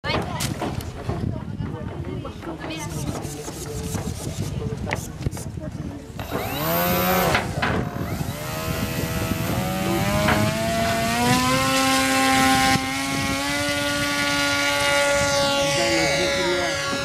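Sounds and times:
model plane motor whining: 6.2s - 17.0s.

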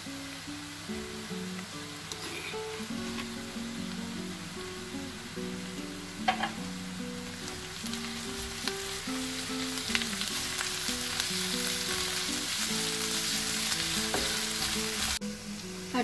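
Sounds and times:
food sizzling in hot oil: 0.0s - 16.0s
spatula scraping and tapping pan: 6.3s - 6.7s, 14.0s - 14.8s.

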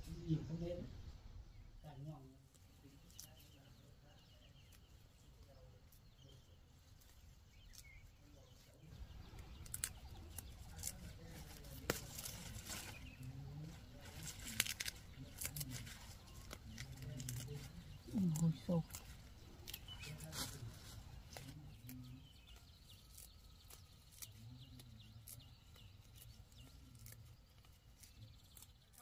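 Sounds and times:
leaves rustling: 2.4s - 29.0s
stems snapping: 7.0s - 8.0s, 9.3s - 29.0s.

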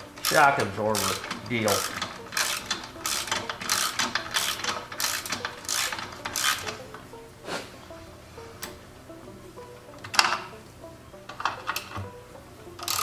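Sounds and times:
ratchet wrench clicking: 0.1s - 6.8s, 12.8s - 13.0s.

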